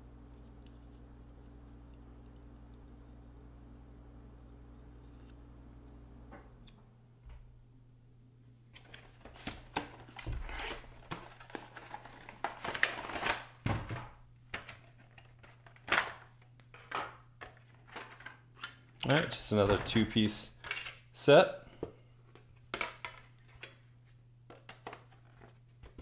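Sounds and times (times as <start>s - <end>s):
plastic packaging crinkling: 8.8s - 13.6s.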